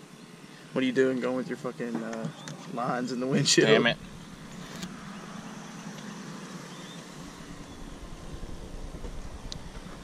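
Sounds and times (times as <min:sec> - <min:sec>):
low rumble: 0:03.8 - 0:10.0.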